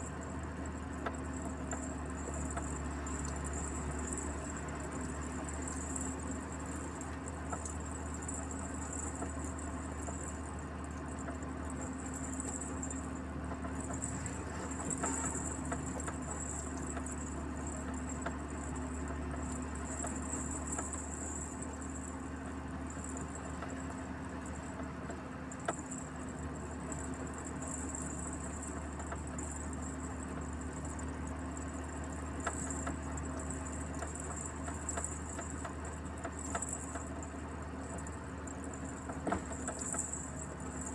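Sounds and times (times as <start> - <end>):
small clicks and rattles: 0.0 - 40.9
truck engine drone: 0.0 - 40.9.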